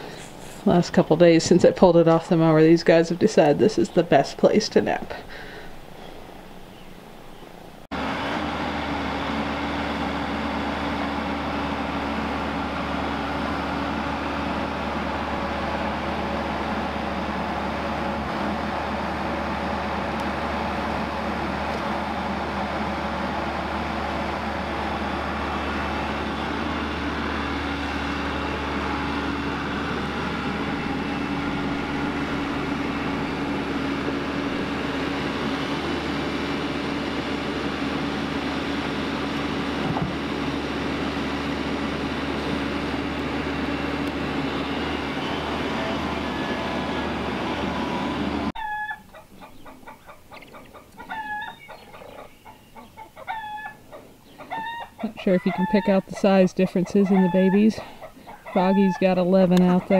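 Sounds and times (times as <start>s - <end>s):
excavator diesel engine running: 0.0s - 48.6s, 49.2s - 59.9s
chicks peeping: 48.6s - 59.9s.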